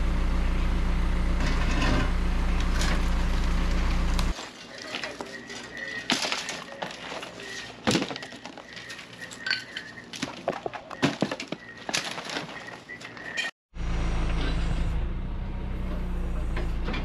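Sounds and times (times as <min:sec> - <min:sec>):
debris clinking and knocking: 0:01.4 - 0:13.5.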